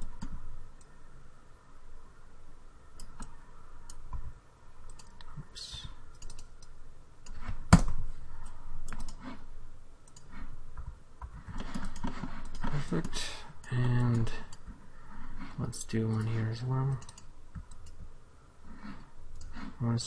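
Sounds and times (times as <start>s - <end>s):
mouse and keyboard clicks: 4.8s - 9.4s, 10.0s - 13.2s, 16.0s - 18.0s.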